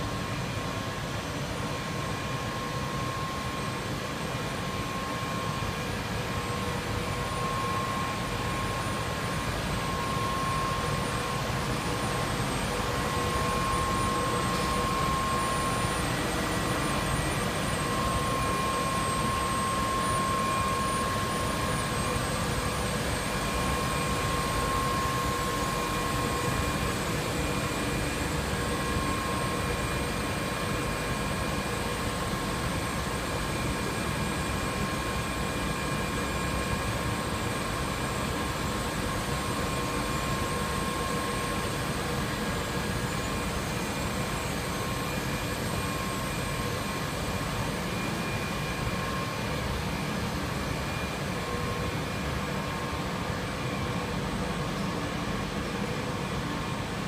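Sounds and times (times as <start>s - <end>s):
factory machinery drone: 0.0s - 57.0s
faint whining tones: 1.6s - 55.6s.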